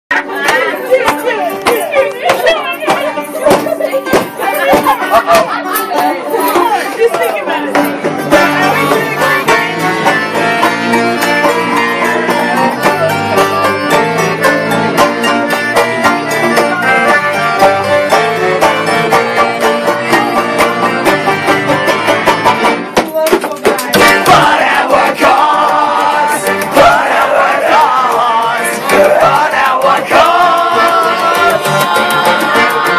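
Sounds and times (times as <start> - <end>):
live band with accordion: 0.1 - 23.0, 28.2 - 32.9.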